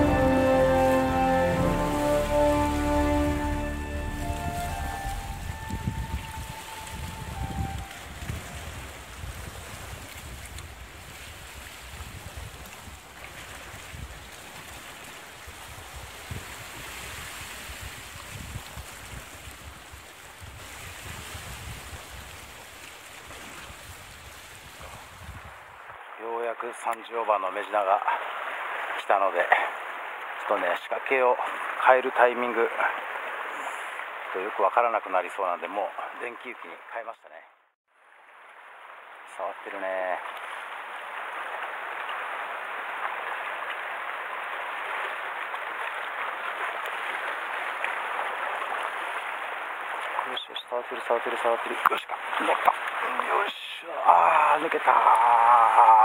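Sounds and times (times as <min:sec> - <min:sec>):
surf washing against rocks: 0:00.0 - 0:34.7, 0:38.4 - 0:56.0
wind buffeting microphone: 0:04.1 - 0:14.4, 0:15.4 - 0:22.7, 0:23.3 - 0:25.6
water splashing ticks: 0:09.8 - 0:11.8, 0:40.2 - 0:50.4, 0:51.0 - 0:53.5.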